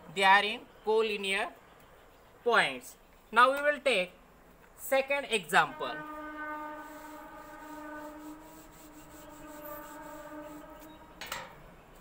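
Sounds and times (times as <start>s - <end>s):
loud rub or knock: 6.5s - 11.5s
duster wiping a chalkboard: 6.6s - 11.0s.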